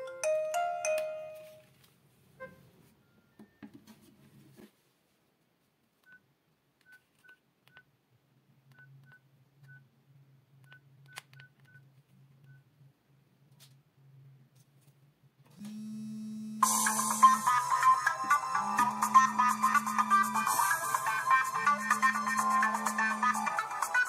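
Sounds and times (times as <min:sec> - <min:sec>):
ringtone melody: 0:00.0 - 0:01.6, 0:16.6 - 0:24.0.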